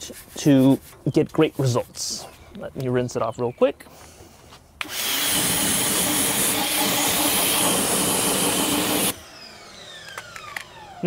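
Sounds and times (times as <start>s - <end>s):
pressure washer spraying water: 4.8s - 9.2s.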